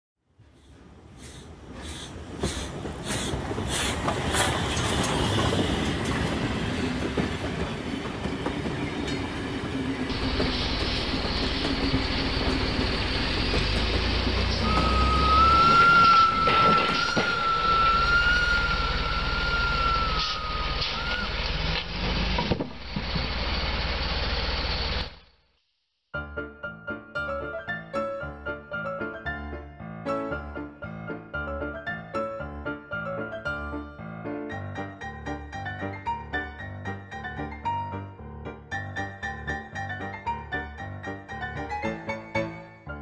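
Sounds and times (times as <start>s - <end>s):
truck engine rumbling: 9.8s - 25.2s
wavering high whine: 14.5s - 21.4s.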